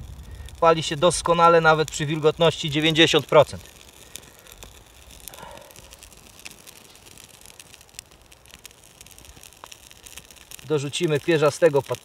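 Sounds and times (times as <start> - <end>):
tinder crackling and ticking: 0.0 - 12.0
tinder rustling: 0.0 - 12.0.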